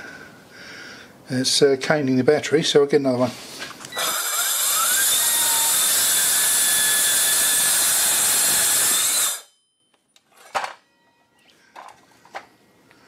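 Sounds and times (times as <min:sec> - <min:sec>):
circular saw cutting steel: 0:04.0 - 0:09.5.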